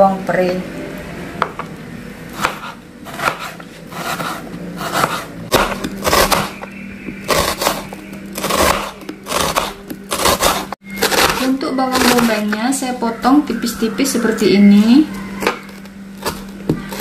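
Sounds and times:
knife slicing onion on board: 2.4 - 6.6, 7.2 - 11.4.

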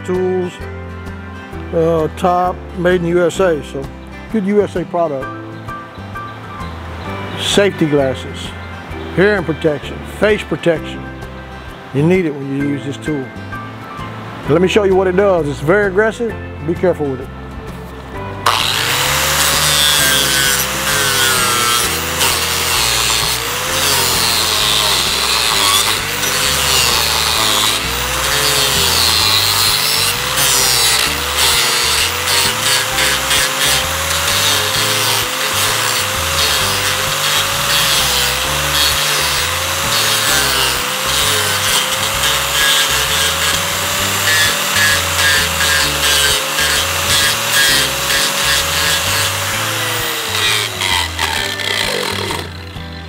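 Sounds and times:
angle grinder motor whine: 18.4 - 53.0
wood chips rasping: 18.4 - 53.0.

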